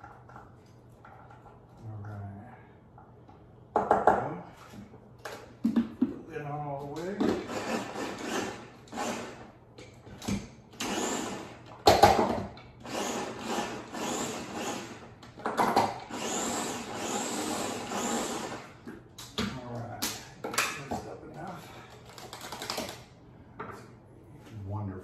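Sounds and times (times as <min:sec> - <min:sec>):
electric food chopper motor: 0:10.8 - 0:11.4, 0:12.8 - 0:14.9, 0:15.8 - 0:18.7.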